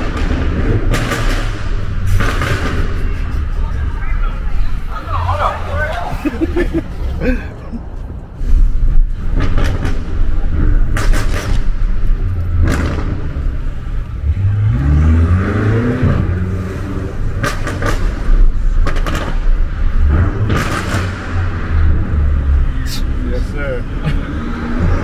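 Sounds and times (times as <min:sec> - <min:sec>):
exhaust cracks: 0:00.0 - 0:06.0, 0:08.6 - 0:23.2
car engine low rumble: 0:00.0 - 0:25.0
engine revving: 0:12.5 - 0:23.3.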